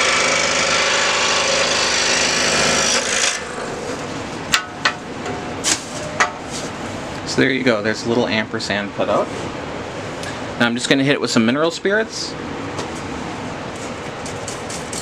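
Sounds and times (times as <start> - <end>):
scroll saw cutting wood: 0.0 - 3.6.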